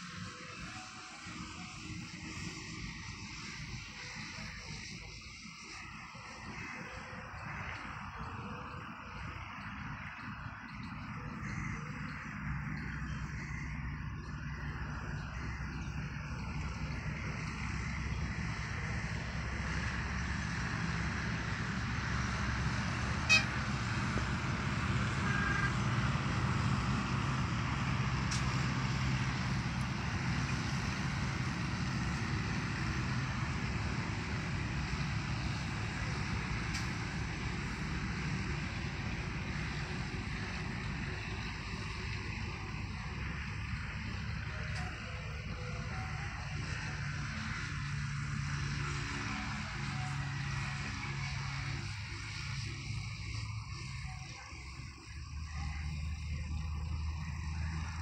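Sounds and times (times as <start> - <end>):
distant low rumble: 7.3 - 45.7.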